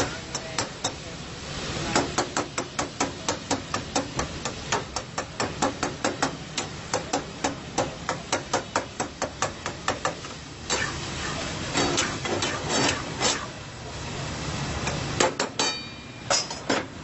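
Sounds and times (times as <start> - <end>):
loud sizzle from pan: 0.0 - 17.0
metal spatula clanking on pan: 15.2 - 16.9.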